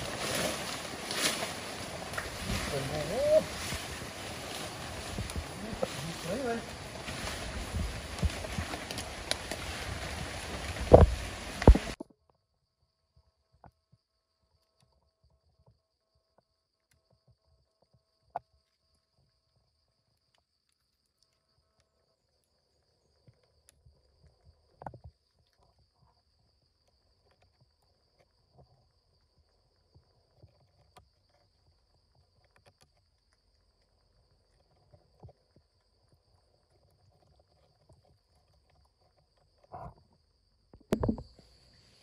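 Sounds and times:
rustling: 0.0s - 12.0s.

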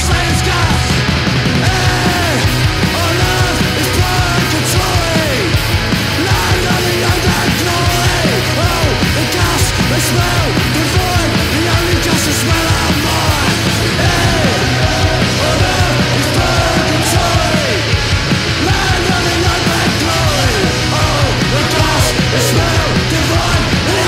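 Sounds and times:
loud punk rock music: 0.0s - 24.0s
shouted vocals: 1.5s - 24.0s.

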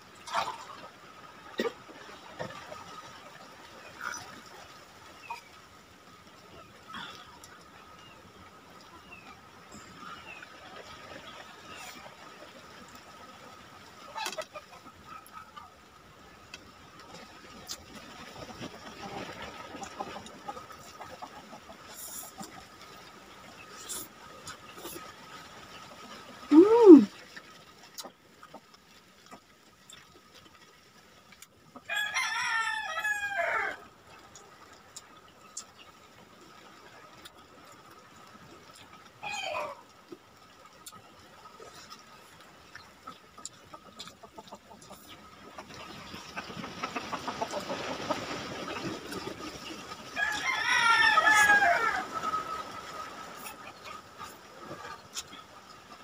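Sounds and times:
rooster crowing: 31.9s - 33.8s, 50.2s - 52.1s.

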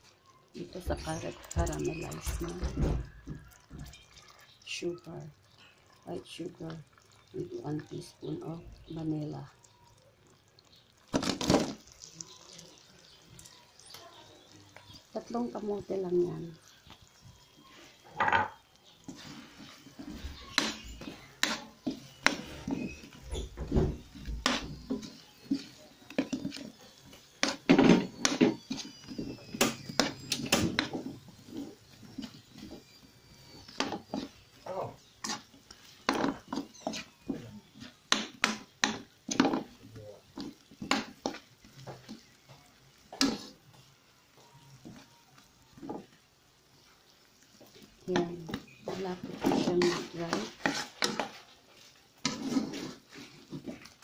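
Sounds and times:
food frying in oil: 0.0s - 54.0s
spatula scraping a wok: 17.7s - 54.0s
utensil scraping a metal pan: 48.2s - 54.0s.

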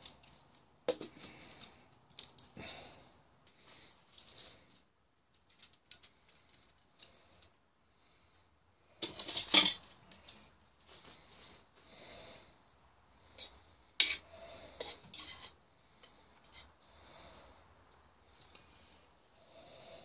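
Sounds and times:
metal utensil scraping a pot: 13.4s - 15.6s.

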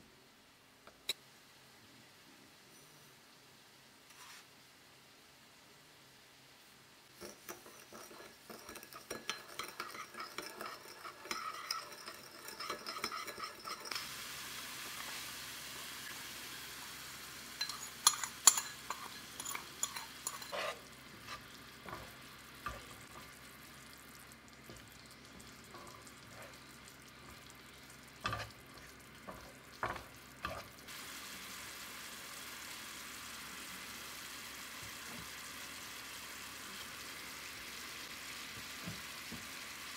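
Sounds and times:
onion sizzling in frying pan: 7.0s - 39.9s
spoon clinking in ceramic bowl: 7.2s - 14.0s, 17.6s - 20.8s
spatula scraping pan: 7.2s - 14.2s, 17.6s - 23.4s, 24.7s - 30.8s.

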